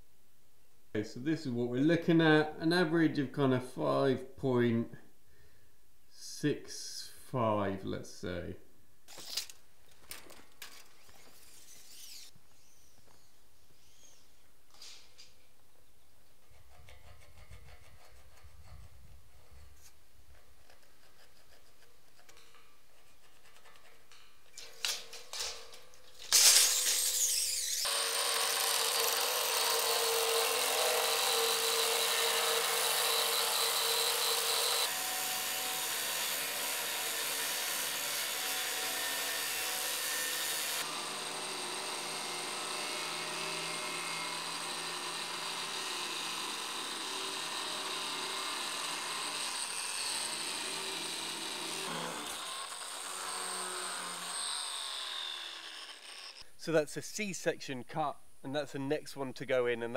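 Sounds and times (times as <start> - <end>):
angle grinder cutting steel: 26.3 - 56.4.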